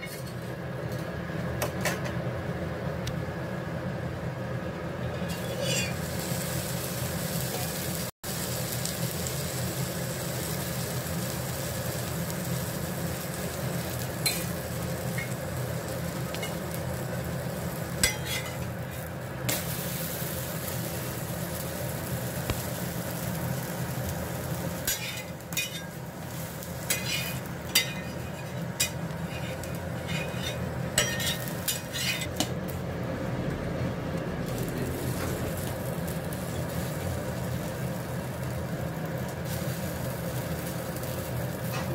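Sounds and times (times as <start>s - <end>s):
paratha sizzling on a griddle: 5.0s - 33.1s, 33.8s - 41.9s
steel spatula scraping a pan: 5.2s - 6.1s, 18.0s - 19.1s, 24.8s - 32.5s.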